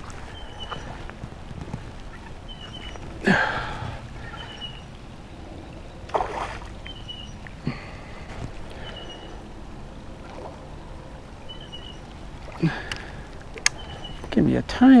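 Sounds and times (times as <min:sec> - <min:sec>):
sharp water splashes: 0:06.1 - 0:07.0.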